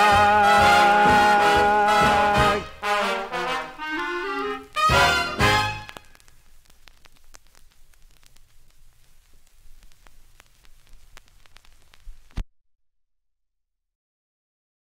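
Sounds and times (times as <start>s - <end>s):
dance band final chord: 0.0s - 6.0s
record surface hiss and crackles: 0.0s - 12.4s.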